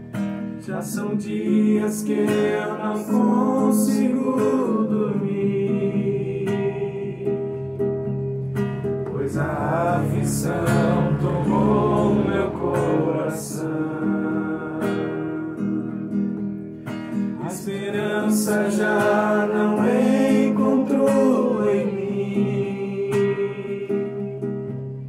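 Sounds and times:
acoustic guitar strummed: 0:00.0 - 0:25.0
man singing a hymn: 0:00.7 - 0:07.3, 0:09.1 - 0:15.6, 0:17.4 - 0:24.0.

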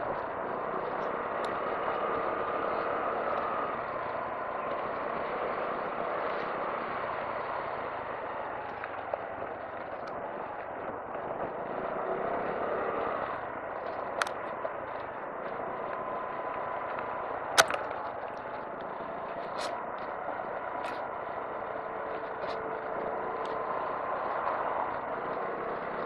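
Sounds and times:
scooter engine running: 0:00.0 - 0:26.0
wind and road noise: 0:00.0 - 0:26.0
sharp clicks: 0:16.9 - 0:18.6.

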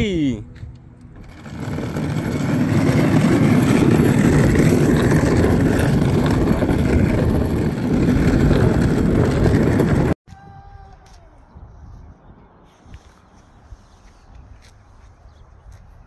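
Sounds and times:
plastic wheels rolling on asphalt: 0:00.7 - 0:10.2.

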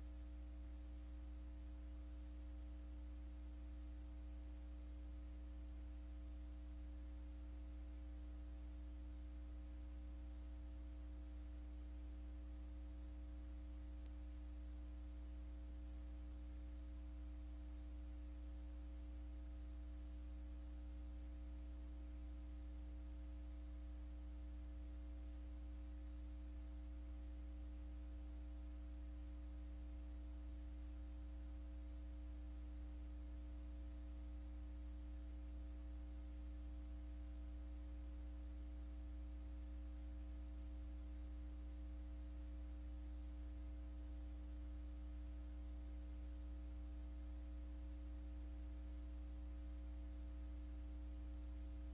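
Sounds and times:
faint hiss: 0:00.0 - 0:41.4
electrical mains hum: 0:00.0 - 0:51.9.

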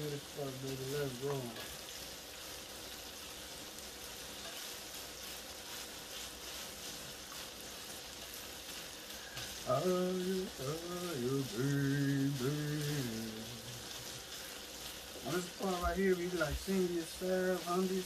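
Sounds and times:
sausage sizzling in a skillet: 0:00.0 - 0:18.0
person humming a tune: 0:09.7 - 0:13.9.

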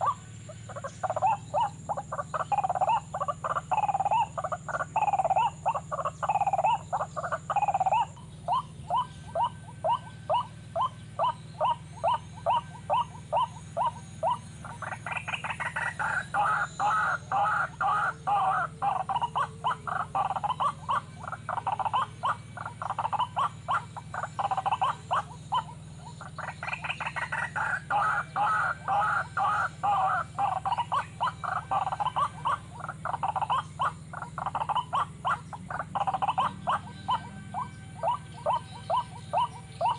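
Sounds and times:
bird croaking calls: 0:00.0 - 0:39.9.

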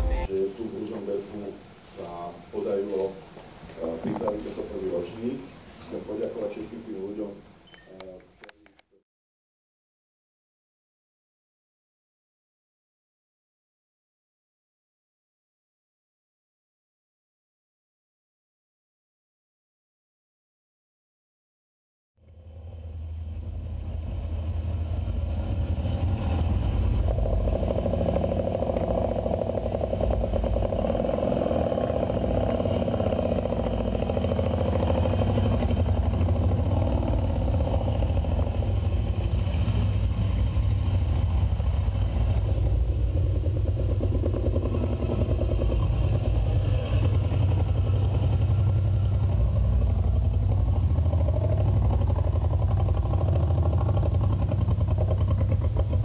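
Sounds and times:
old motorcycle engines running: 0:22.3 - 0:56.0.

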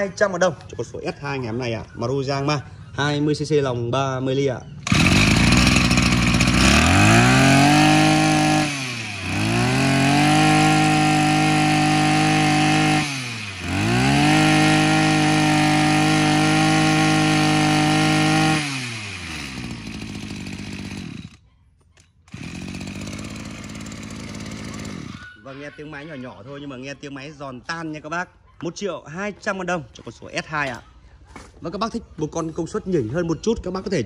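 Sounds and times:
brush cutter engine revving: 0:04.8 - 0:21.4, 0:22.3 - 0:25.3.

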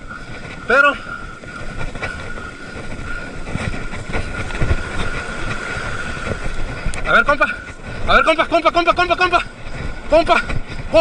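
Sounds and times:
surf washing up the beach: 0:00.0 - 0:11.0
wind buffeting the microphone: 0:00.0 - 0:11.0.

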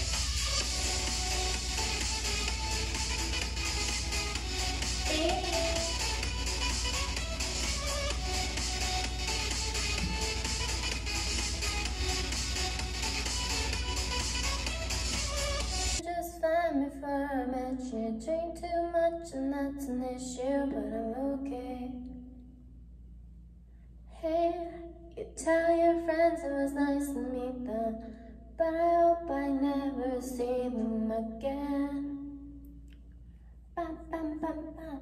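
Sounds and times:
woman singing unaccompanied: 0:05.0 - 0:06.3.

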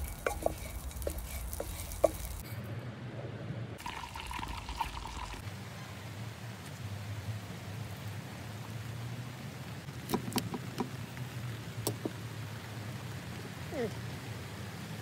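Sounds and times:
cutlery crunching crisp crust: 0:00.0 - 0:02.4.

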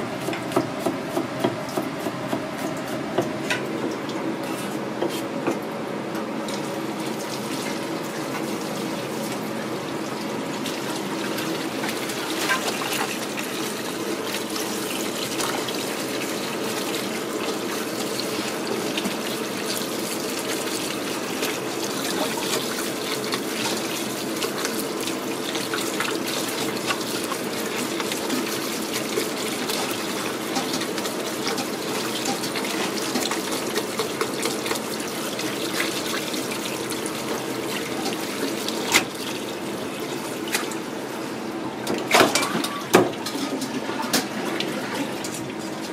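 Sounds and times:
tap water running into colander: 0:00.0 - 0:45.9
hands squeezing wet vegetables: 0:10.6 - 0:41.3.

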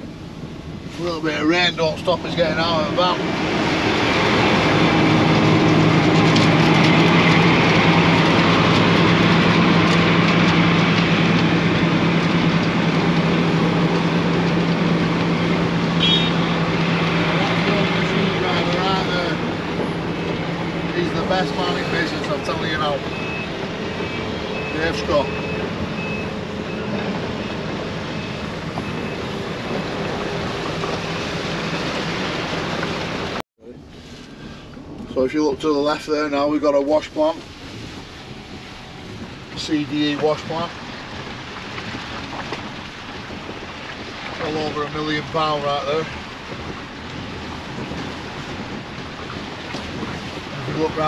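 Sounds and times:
vehicle engine running: 0:00.0 - 0:51.0
rain hissing: 0:35.7 - 0:51.0.

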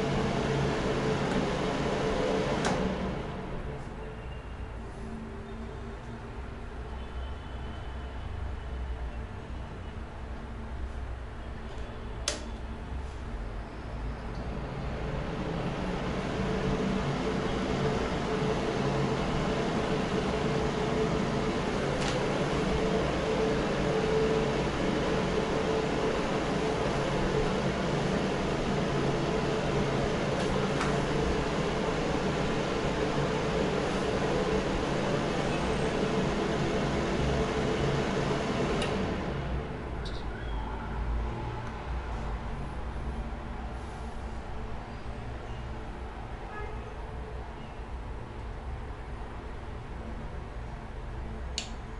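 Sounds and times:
fan heater blowing air: 0:00.0 - 0:51.9
heater switch click: 0:11.7 - 0:12.6, 0:38.8 - 0:39.0, 0:51.6 - 0:51.8.

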